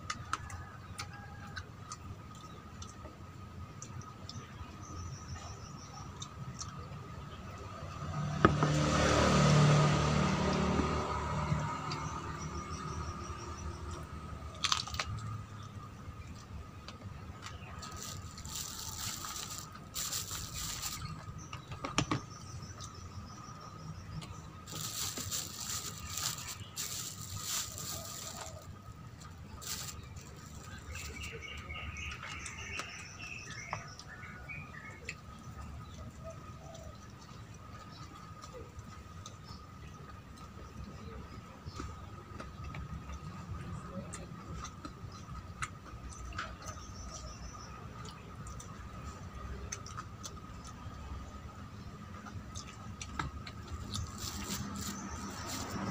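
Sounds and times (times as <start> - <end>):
clicks of eating crispy chicken: 13.9 - 23.0, 41.8 - 55.9
fried chicken crunching: 14.5 - 23.2, 24.0 - 33.4, 52.1 - 55.9.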